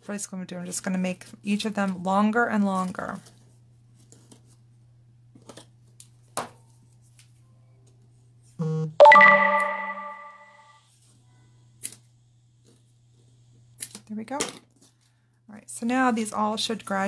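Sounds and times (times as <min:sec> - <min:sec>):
short low beep: 0:08.7 - 0:10.6
electronic chime: 0:09.0 - 0:10.6.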